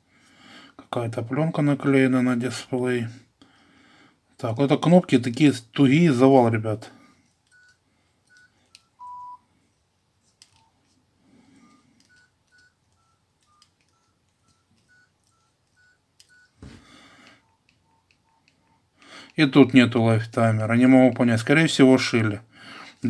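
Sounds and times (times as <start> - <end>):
phone keypad beeps: 7.5 - 9.4, 11.7 - 16.6, 17.2 - 18.9
longer lower beep: 8.3 - 9.4.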